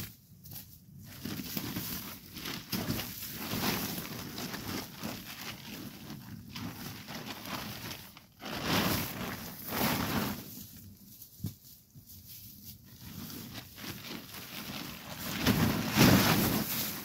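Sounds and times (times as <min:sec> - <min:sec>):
tarp rustling and flapping: 0:00.0 - 0:17.0.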